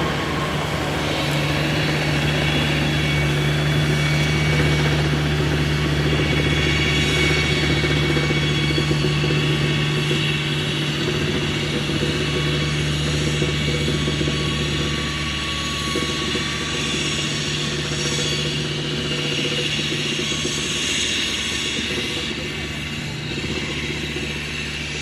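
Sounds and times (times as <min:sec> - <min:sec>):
electric train humming: 0:00.0 - 0:25.0.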